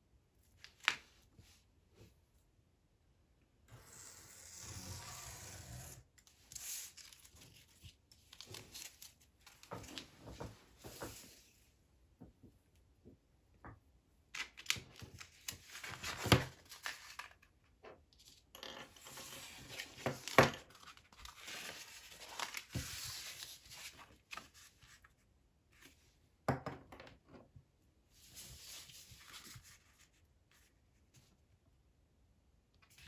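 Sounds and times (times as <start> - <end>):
paper sheets rustling and sliding: 15.0 - 17.3, 19.0 - 24.7.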